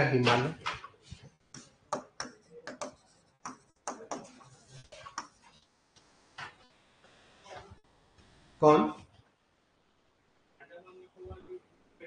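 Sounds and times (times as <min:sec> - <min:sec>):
pen tapping and clicking: 0:01.6 - 0:04.3.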